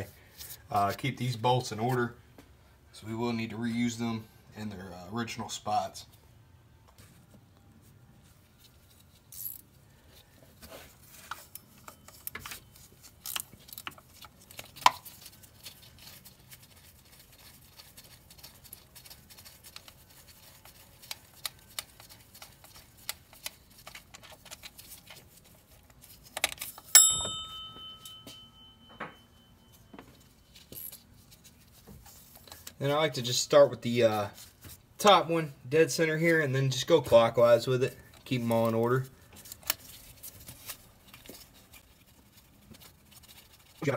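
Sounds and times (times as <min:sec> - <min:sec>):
ratcheting wrench clicks: 0:13.2 - 0:14.0
loud ringing metal clink: 0:27.0 - 0:29.7.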